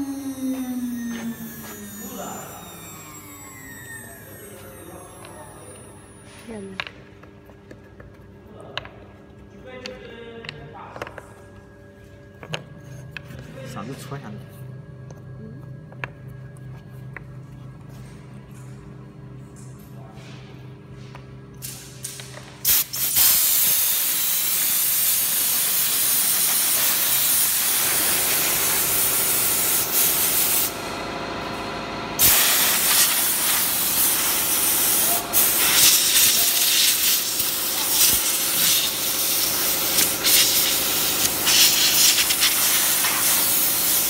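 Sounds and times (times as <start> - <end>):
air blow gun hissing: 22.6 - 30.7, 32.2 - 44.0.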